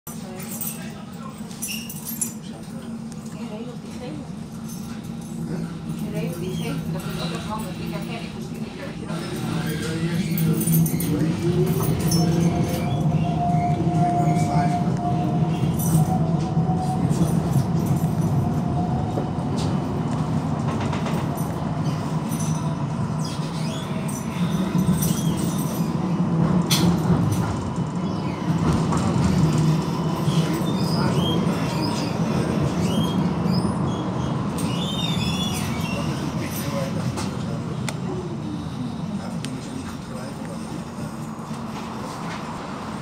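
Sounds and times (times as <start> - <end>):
tram wheels rumbling: 2.4 - 43.0
high wheel squeals: 30.1 - 36.6.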